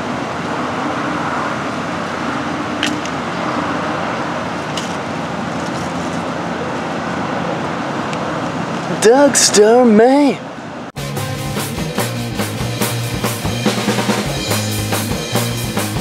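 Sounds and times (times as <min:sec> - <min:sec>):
road traffic rush: 0:00.0 - 0:16.0.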